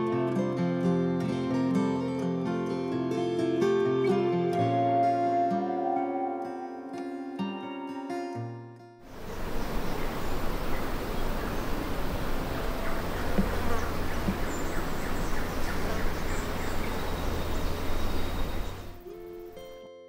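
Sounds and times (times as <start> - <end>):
insects buzzing: 9.1 - 19.8.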